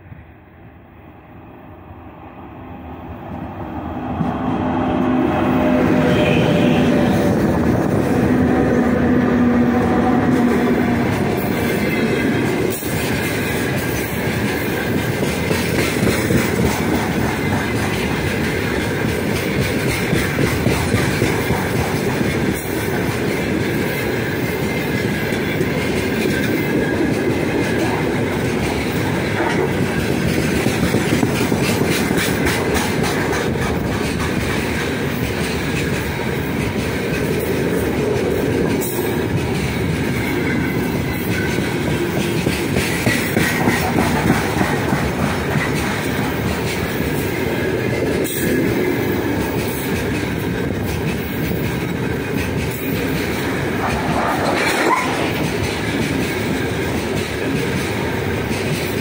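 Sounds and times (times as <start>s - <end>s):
steel wheels rumbling on rail: 0.0s - 59.0s
wheels clattering over rail joints: 10.3s - 59.0s.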